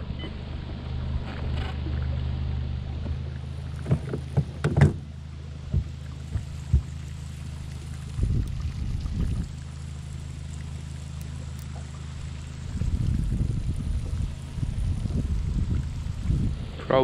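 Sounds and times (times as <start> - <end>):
boat motor humming: 0.0 - 17.0
knocks against boat: 3.8 - 5.1, 5.7 - 7.0.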